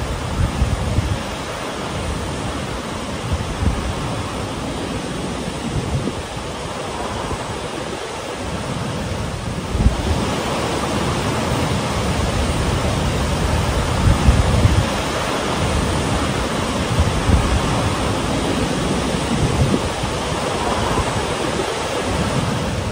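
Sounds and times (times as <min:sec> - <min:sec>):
river running over rocks: 0:00.0 - 0:22.9
waterfall rushing: 0:00.0 - 0:22.9.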